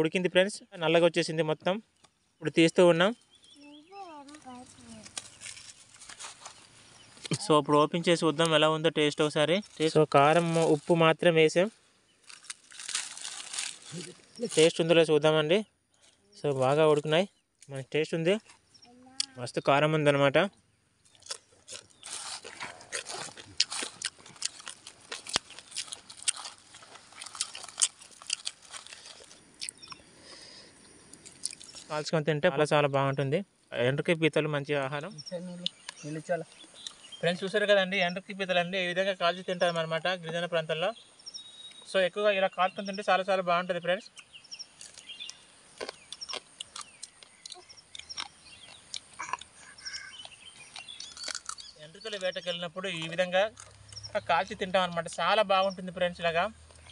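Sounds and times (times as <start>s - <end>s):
faint birds chirping: 0.0s - 56.9s
dry leaves crackling and crunching: 4.0s - 7.3s, 9.6s - 14.8s, 21.0s - 29.5s, 50.6s - 52.3s
mouth clicks: 29.6s - 30.1s, 44.9s - 51.8s.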